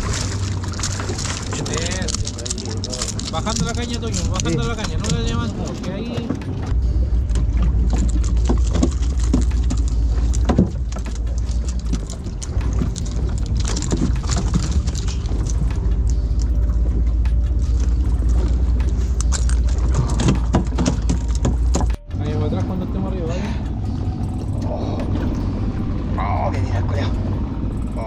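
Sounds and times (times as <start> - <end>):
knocks and splashes: 0.0 - 22.2
boat motor rumble: 0.0 - 28.0
water and wind noise: 0.0 - 28.0.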